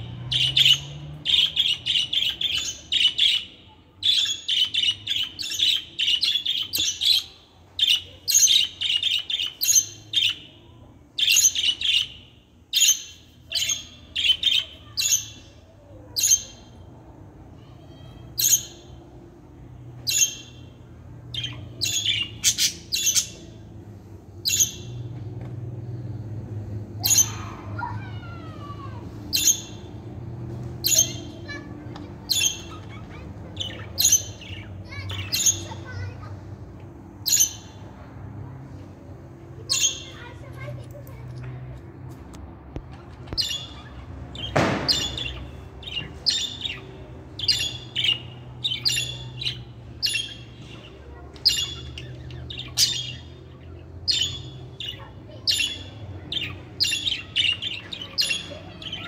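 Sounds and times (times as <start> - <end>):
budgerigars chirping and squawking: 0.2 - 10.4, 12.8 - 15.4, 21.3 - 23.5, 27.0 - 27.9, 30.8 - 36.2, 37.2 - 37.8, 43.3 - 59.0.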